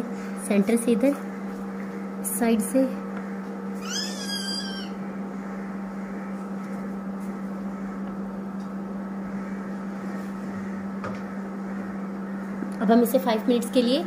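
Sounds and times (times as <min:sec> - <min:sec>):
low electrical hum: 0:00.0 - 0:14.0
high gliding cry: 0:03.8 - 0:05.0.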